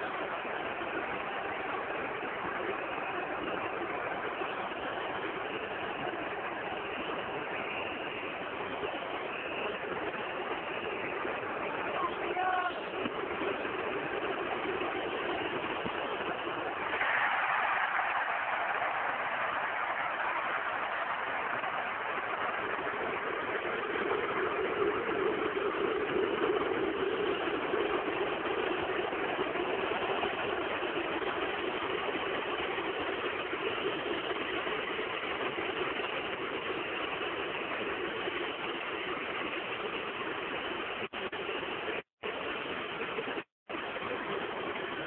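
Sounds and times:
stadium crowd roar: 16.4s - 24.4s.

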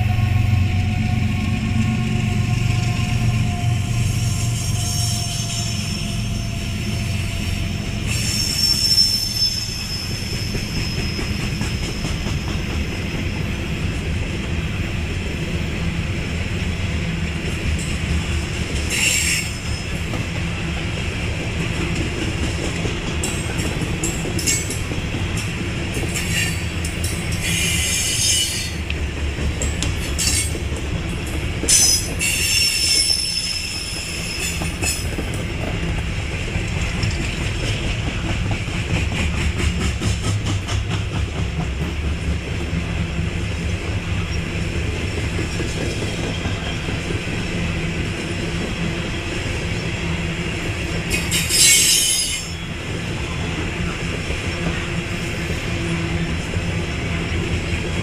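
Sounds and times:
freight train rumbling past: 0.0s - 58.0s
high-pitched wheel squeal: 2.2s - 12.2s, 18.9s - 20.0s, 27.4s - 28.8s, 31.7s - 35.0s, 51.2s - 52.7s
wheels clicking over rail joints: 17.6s - 32.5s, 34.4s - 42.8s.

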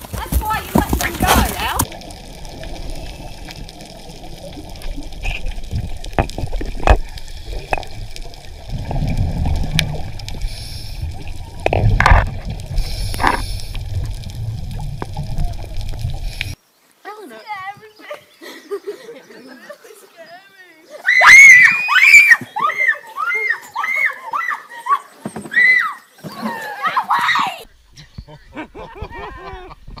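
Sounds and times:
bubbling and gurgling: 1.5s - 16.6s
underwater rumble: 1.5s - 16.6s.

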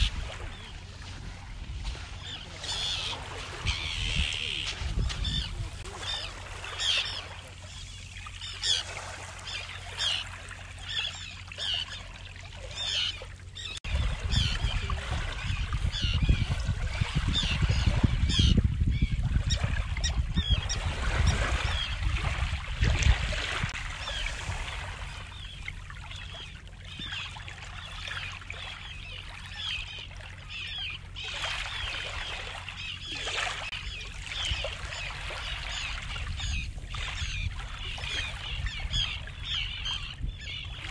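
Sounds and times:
wind rumble on microphone: 0.0s - 6.0s, 13.8s - 26.3s, 33.8s - 40.9s.

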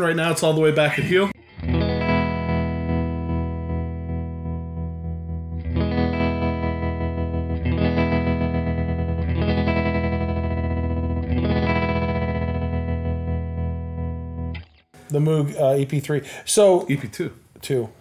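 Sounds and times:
electric guitar chords with tremolo: 1.4s - 14.9s.

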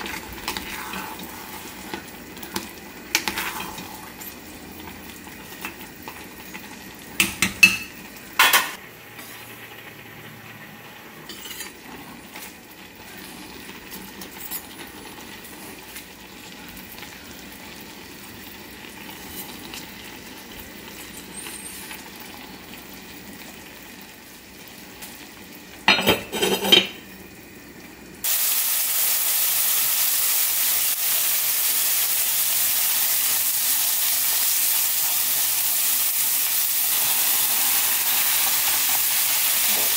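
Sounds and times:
loud steady sizzling: 0.0s - 39.9s
utensils clattering: 25.9s - 27.0s.

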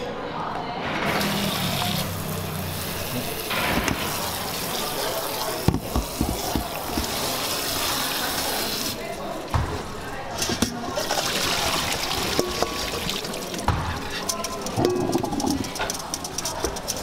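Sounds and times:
tap water splashing into bowl: 11.1s - 14.4s.

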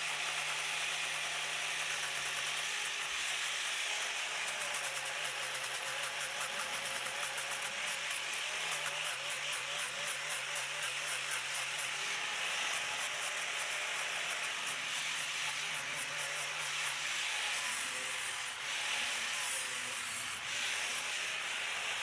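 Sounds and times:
angle grinder sanding wood: 3.0s - 22.0s.

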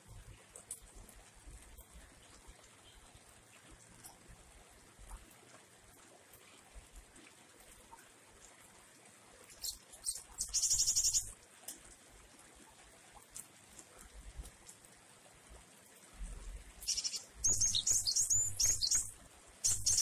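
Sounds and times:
faint rain dripping: 0.0s - 20.0s
songbird calling: 9.5s - 11.3s, 16.8s - 20.0s
fast high bird trill: 16.8s - 19.1s, 19.7s - 20.0s.

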